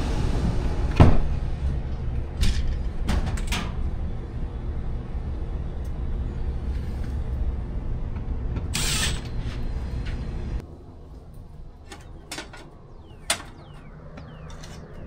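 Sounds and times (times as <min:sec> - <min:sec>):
steady low hum: 0:00.0 - 0:15.0
metal panel and tools clanking: 0:11.8 - 0:13.8.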